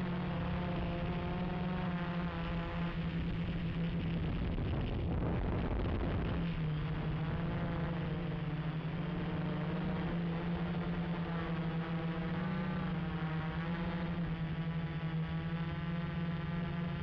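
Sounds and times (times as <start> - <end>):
quadcopter buzzing hum: 0.0 - 17.0.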